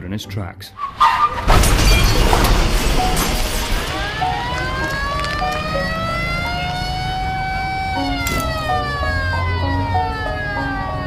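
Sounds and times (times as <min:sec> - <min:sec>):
crash noise: 0:00.9 - 0:06.9
emergency siren wailing: 0:03.0 - 0:11.0.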